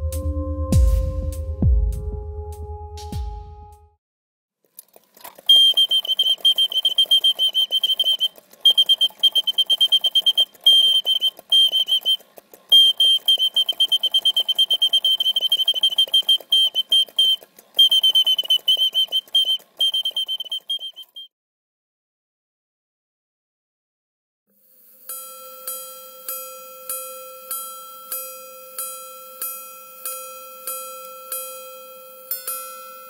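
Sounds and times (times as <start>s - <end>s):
mechanical birdsong whistle trills: 5.5s - 21.3s.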